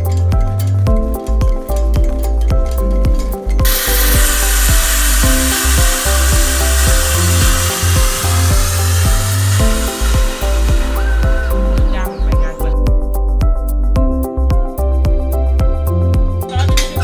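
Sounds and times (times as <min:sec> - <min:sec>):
background music with steady beat: 0:00.0 - 0:17.0
steam hissing loudly: 0:03.7 - 0:12.1.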